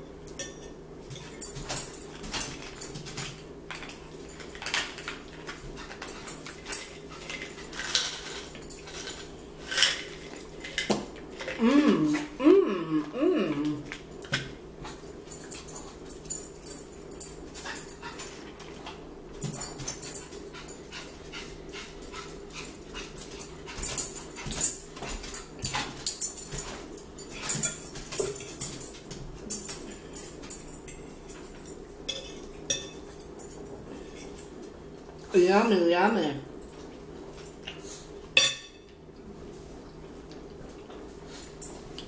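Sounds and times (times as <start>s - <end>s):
chewing: 39.2s - 42.0s.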